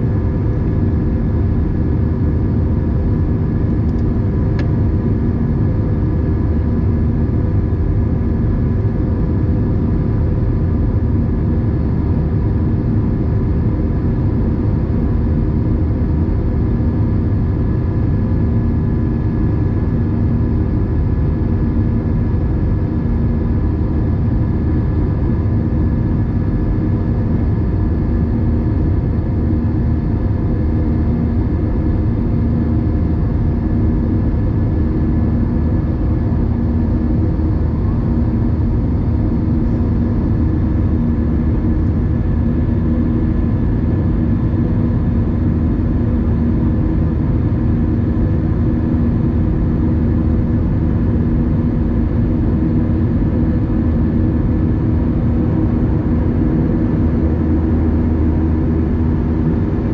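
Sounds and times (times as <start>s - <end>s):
jet engine cabin drone: 0.0s - 59.9s.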